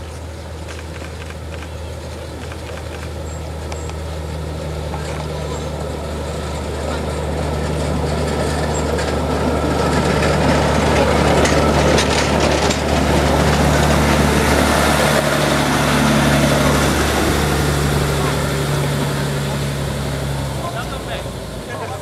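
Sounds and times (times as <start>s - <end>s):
diesel engine humming: 0.0s - 22.0s
metallic clicks of wheels on track: 0.6s - 5.8s, 6.5s - 14.9s.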